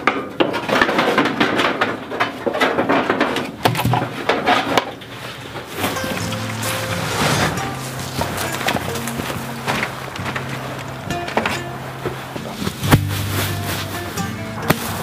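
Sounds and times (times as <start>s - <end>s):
tray clattering in metal box: 0.0s - 15.0s.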